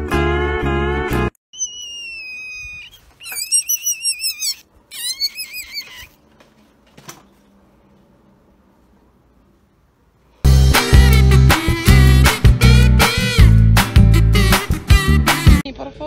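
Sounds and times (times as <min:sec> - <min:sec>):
kitten crying: 0:01.6 - 0:06.2.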